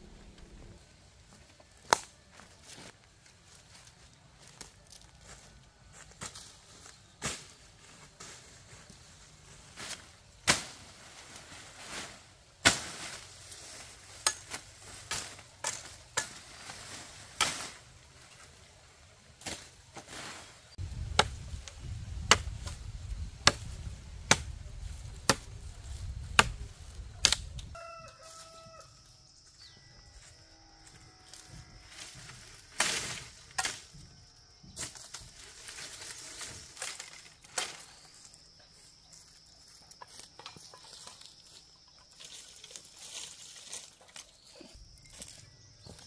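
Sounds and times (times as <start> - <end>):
rooster crowing: 27.7 - 29.7.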